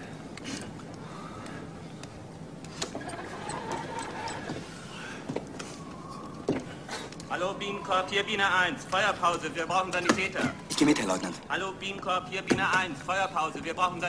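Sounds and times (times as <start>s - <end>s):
hand-crank magneto whirring: 2.7s - 4.7s.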